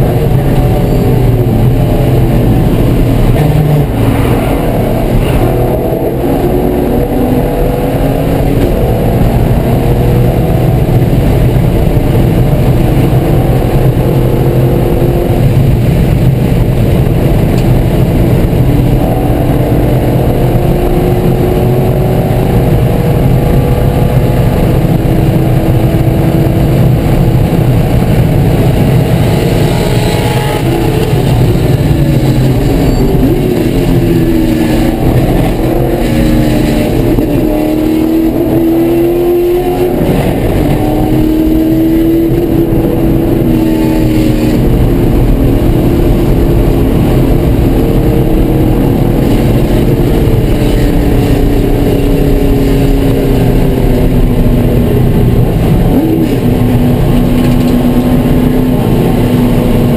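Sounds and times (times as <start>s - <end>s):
race car engine revving through gears: 0.0s - 59.9s.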